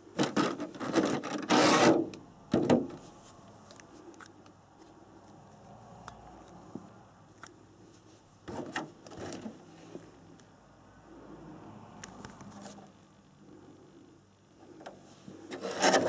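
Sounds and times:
plastic rubbing and knocks: 0.2s - 3.0s.

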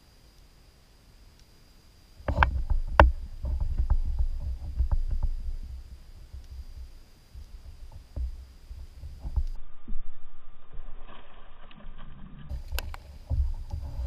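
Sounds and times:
low rumble: 2.3s - 14.0s.

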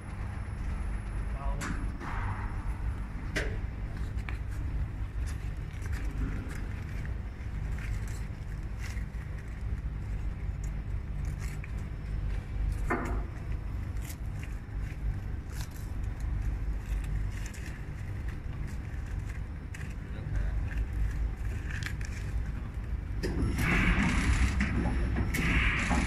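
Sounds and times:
low workshop rumble: 0.0s - 26.0s.

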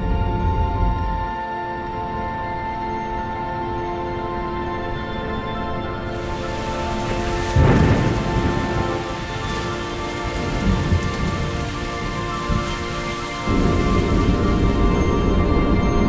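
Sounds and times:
faint music drone: 0.0s - 16.0s
rain falling: 6.1s - 16.0s
thunder rumble: 6.1s - 16.0s.

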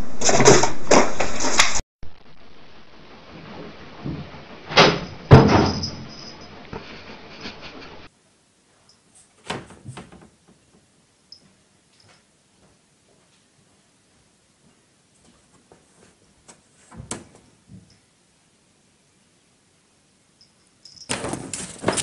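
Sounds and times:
rattle: 3.3s - 6.6s, 20.4s - 22.0s.

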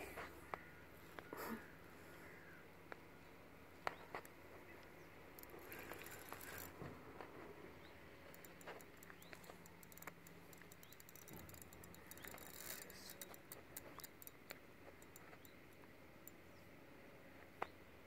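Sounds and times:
small ticks and clicks: 3.8s - 16.6s.

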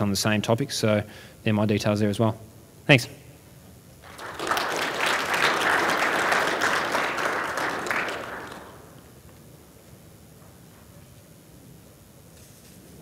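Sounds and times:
audience applauding: 4.0s - 9.1s.

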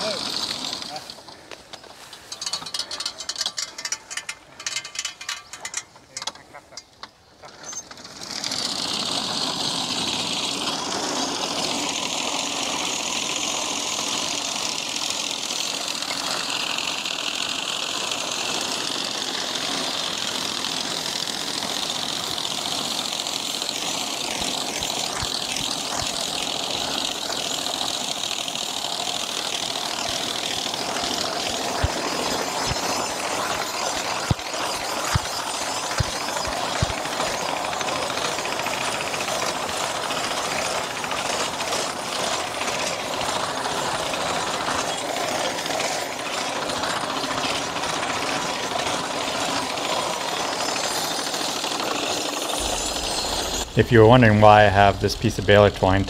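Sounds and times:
mower knife chattering: 21.8s - 39.4s.

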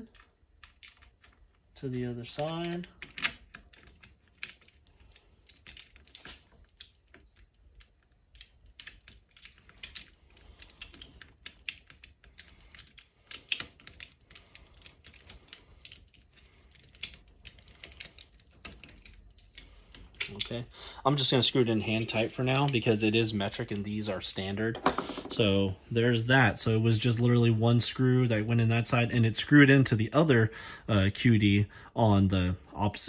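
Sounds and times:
hex key clicking on metal: 5.5s - 20.5s.

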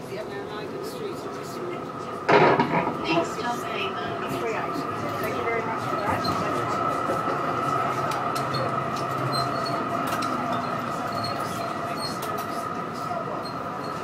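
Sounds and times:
tram wheels rumbling on rails: 0.0s - 14.0s.

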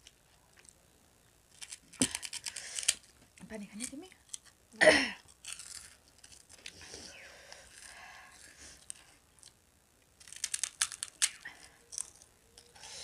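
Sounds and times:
crunching crisp snack: 1.5s - 3.2s, 5.2s - 6.8s, 7.5s - 12.9s.

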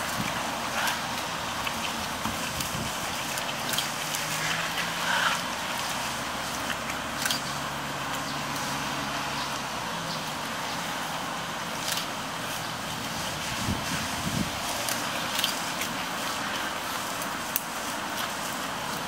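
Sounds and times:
branches snapping: 0.0s - 8.8s, 11.7s - 13.2s, 14.3s - 19.0s
animal chewing leafy branches: 0.0s - 19.0s
electric fans whirring: 0.0s - 19.0s.

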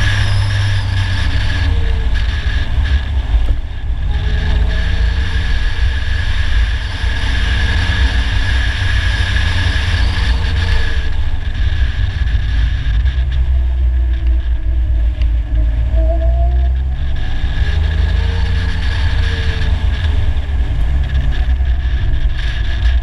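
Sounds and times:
car engine running: 0.0s - 23.0s
wind rumble on microphone: 0.0s - 23.0s.

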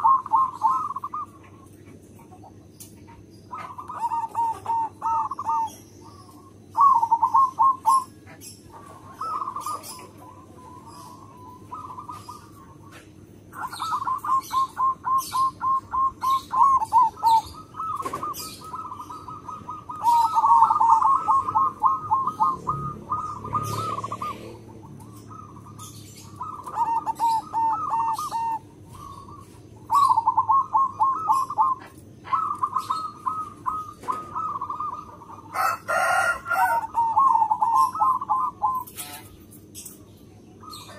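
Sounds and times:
dove cooing: 0.0s - 40.9s
small birds chirping: 0.0s - 40.9s.

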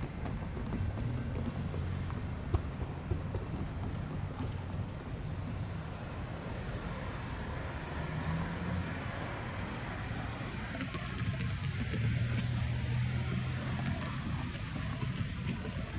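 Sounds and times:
low rumble of road traffic: 0.0s - 15.9s.

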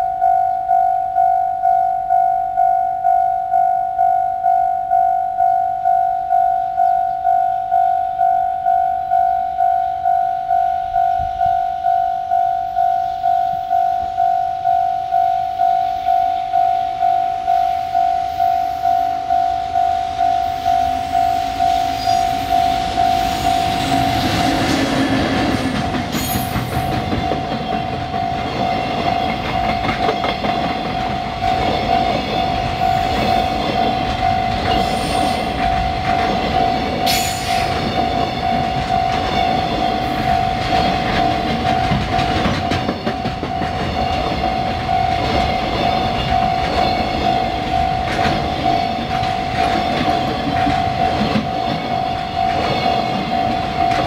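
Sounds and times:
electric locomotive passing: 0.0s - 54.0s
high ringing tone: 0.0s - 54.0s
train wheels clacking over rail joints: 22.8s - 54.0s.

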